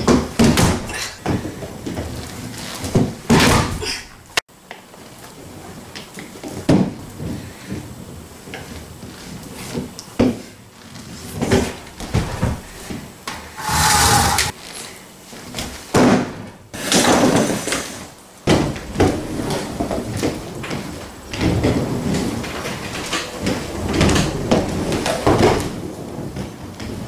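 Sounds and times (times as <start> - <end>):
roller skate wheels rolling: 0.0 - 3.4, 16.8 - 27.0
skates knocking on floor: 0.0 - 3.6.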